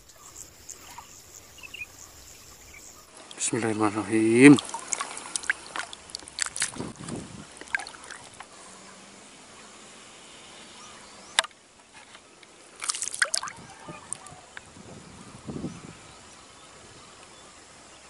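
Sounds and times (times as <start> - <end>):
water sloshing and trickling: 0.0 - 8.5, 12.5 - 14.4
small water splashes and drips: 3.0 - 8.5, 12.7 - 14.3.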